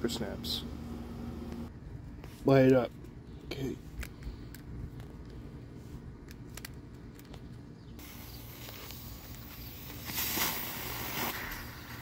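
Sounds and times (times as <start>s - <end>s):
firework spewing with rushing hiss: 8.0s - 12.0s
fuse hissing: 8.0s - 12.0s.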